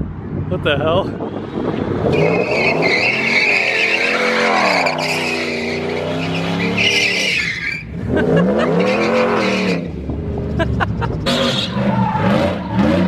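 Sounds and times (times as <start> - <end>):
truck engine revving: 1.2 - 13.0
tyres squealing: 2.1 - 9.9.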